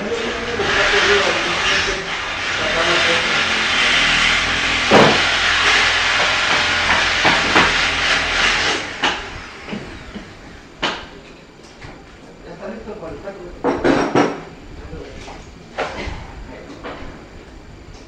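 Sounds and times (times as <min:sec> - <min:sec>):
power tool hissing: 0:00.0 - 0:10.8
sharp knocks: 0:04.2 - 0:11.1.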